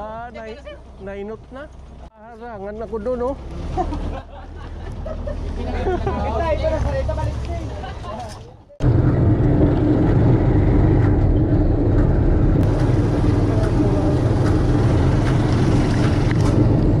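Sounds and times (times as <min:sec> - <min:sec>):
motorcycle engine running: 0:08.8 - 0:17.0.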